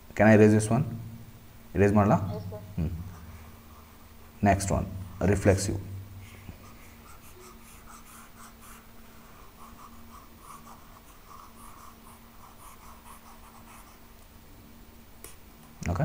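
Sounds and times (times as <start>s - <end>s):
steady low hum: 0.0s - 16.0s
stylus scrubbing on tablet screen: 6.5s - 14.0s.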